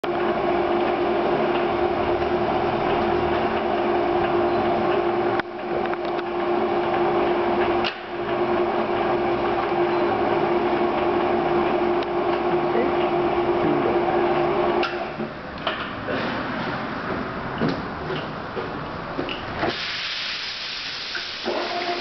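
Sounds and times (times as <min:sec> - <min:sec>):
lathe humming with whine: 0:00.0 - 0:15.1.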